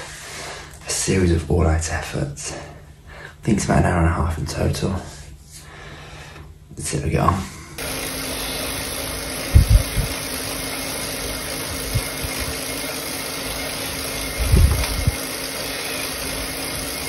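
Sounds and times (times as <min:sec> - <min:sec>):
bike trainer mechanical whir: 0:07.8 - 0:17.0.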